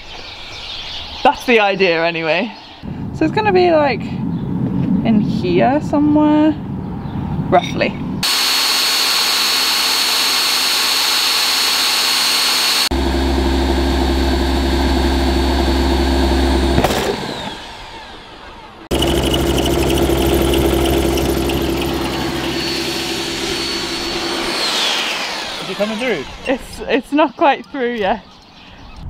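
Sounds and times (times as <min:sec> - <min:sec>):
electric drill cutting metal: 0:08.2 - 0:26.9.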